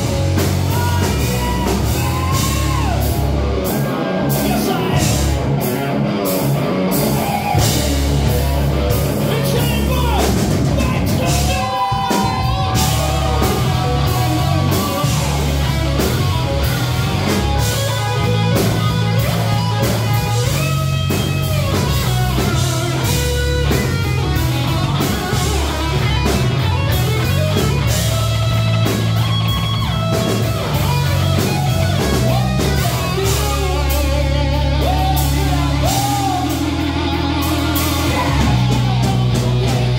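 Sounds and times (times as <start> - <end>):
distorted electric guitar lead: 0.0 - 39.9
rock band playing live: 0.0 - 39.9.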